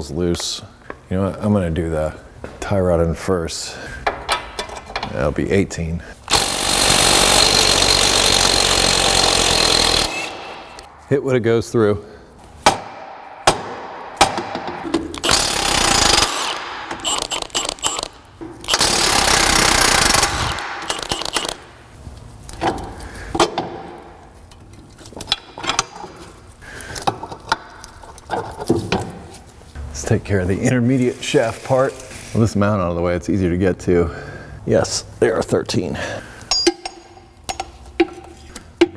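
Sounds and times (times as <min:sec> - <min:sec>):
impact wrench hammering: 0:06.3 - 0:10.9, 0:12.6 - 0:21.6, 0:36.5 - 0:38.2
metal tool clicks and knocks: 0:36.5 - 0:38.9.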